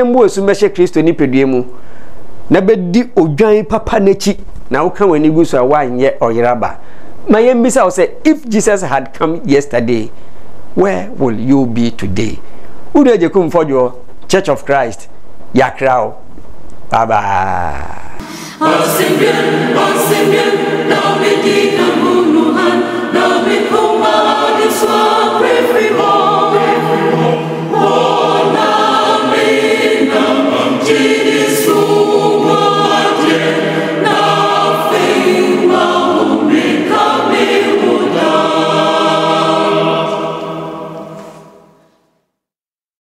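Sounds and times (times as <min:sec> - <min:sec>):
choir singing gospel: 0:18.2 - 0:41.8.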